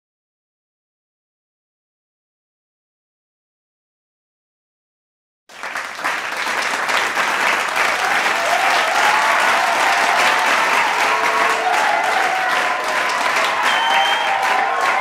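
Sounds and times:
audience applause: 0:05.5 - 0:15.0.

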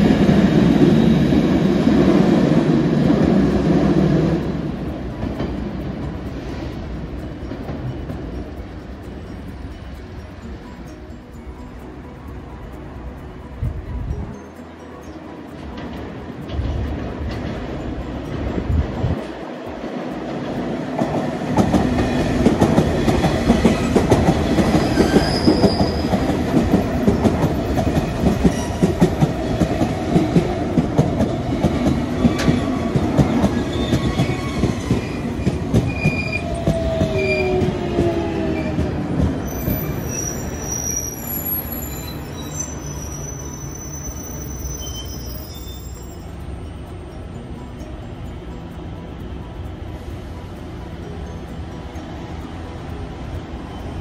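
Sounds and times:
train wheels clicking over rails: 0:00.0 - 0:10.5, 0:15.2 - 0:46.1
high-pitched wheel squeals: 0:23.7 - 0:26.5, 0:27.6 - 0:29.2, 0:33.5 - 0:47.3.

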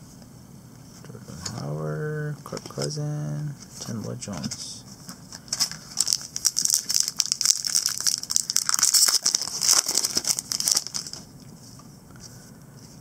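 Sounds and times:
plastic wrapper crinkling: 0:05.3 - 0:11.3.

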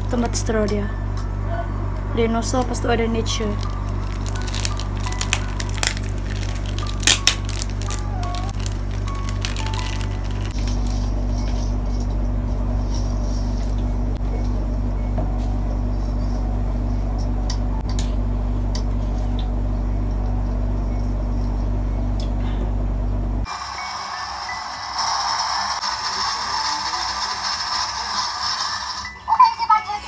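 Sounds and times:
appliance motor hum: 0:00.0 - 0:29.2
plastic crinkling and clicks: 0:03.6 - 0:11.1.

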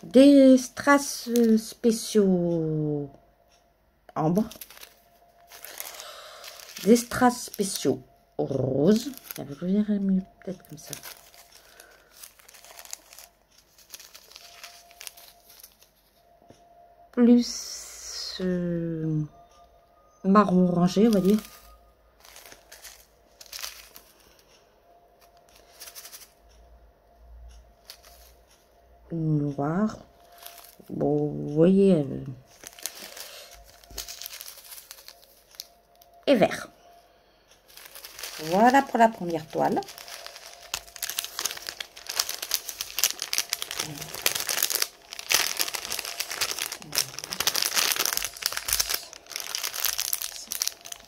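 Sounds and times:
plastic bags crinkling: 0:00.0 - 0:02.2, 0:04.3 - 0:16.1, 0:20.9 - 0:24.4, 0:25.2 - 0:26.4, 0:27.8 - 0:28.3, 0:30.1 - 0:31.1, 0:32.2 - 0:36.2, 0:37.6 - 0:51.0.

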